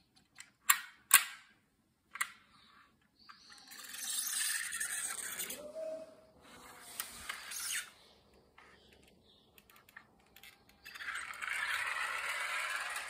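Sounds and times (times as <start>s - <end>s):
toy car clicking and rattling: 3.3s - 5.5s, 8.6s - 13.0s
toy car motor whirring: 3.4s - 5.6s, 6.6s - 8.0s, 10.3s - 13.0s.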